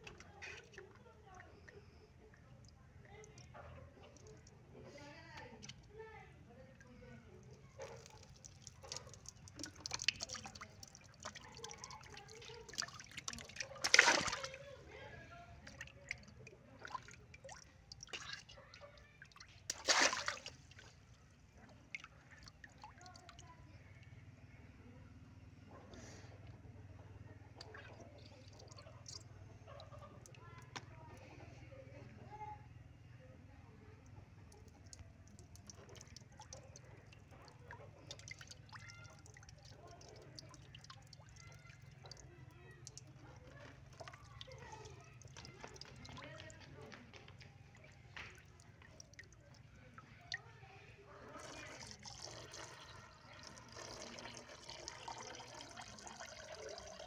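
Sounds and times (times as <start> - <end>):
water sloshing in a tub: 0.0 - 24.1, 25.6 - 32.0, 33.9 - 57.0
water jet spurting from balloon: 11.4 - 14.6, 19.7 - 20.6.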